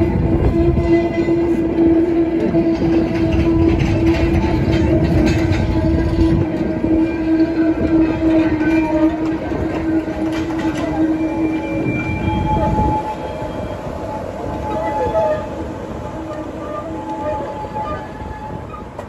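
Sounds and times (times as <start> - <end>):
train wheels rumbling over rails: 0.0 - 19.0
wagon clanks: 0.5 - 13.5.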